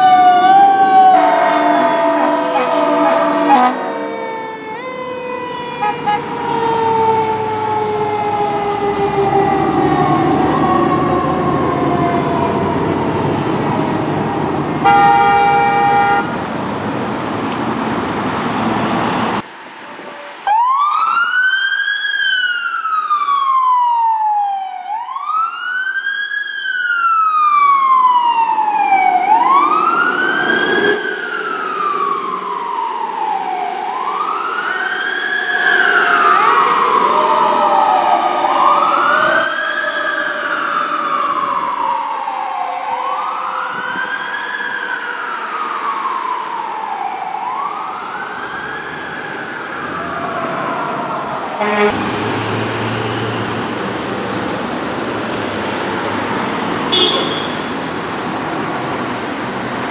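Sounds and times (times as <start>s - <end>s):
fire truck siren wailing: 0.0s - 59.9s
truck and road noise: 0.0s - 59.9s
air horn blast: 1.1s - 4.1s, 5.8s - 6.3s, 14.8s - 16.3s, 51.6s - 52.0s, 56.9s - 57.7s.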